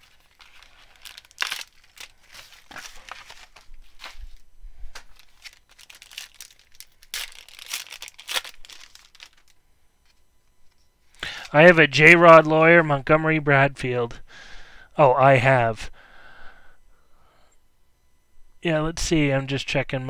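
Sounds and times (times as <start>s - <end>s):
foil pack tearing and crinkling: 0.0s - 4.4s, 5.0s - 9.6s.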